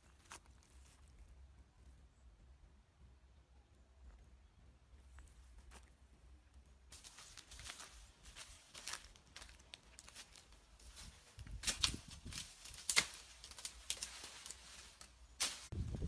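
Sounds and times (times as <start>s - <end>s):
rustling leaves and twigs: 0.0s - 2.3s, 4.0s - 16.0s
blade hacking branches: 11.4s - 15.9s
blade cracking against wood: 11.6s - 14.6s.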